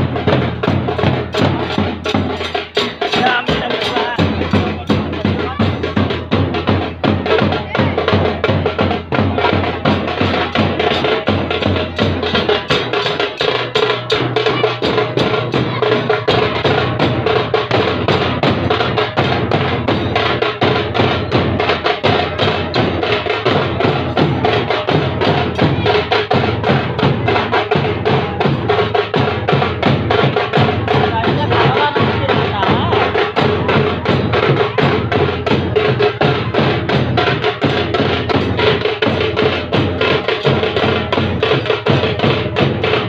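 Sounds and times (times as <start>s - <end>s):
marching drums playing: 0.0s - 43.0s.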